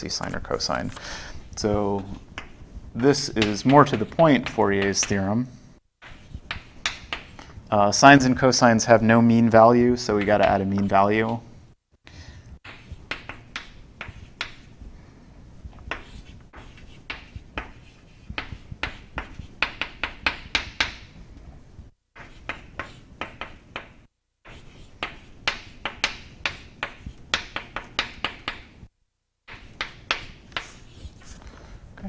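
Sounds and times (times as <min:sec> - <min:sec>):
chalk tapping on chalkboard: 0:02.0 - 0:05.2, 0:06.0 - 0:07.5, 0:12.6 - 0:14.8, 0:15.8 - 0:21.2, 0:22.2 - 0:28.8, 0:29.5 - 0:31.3.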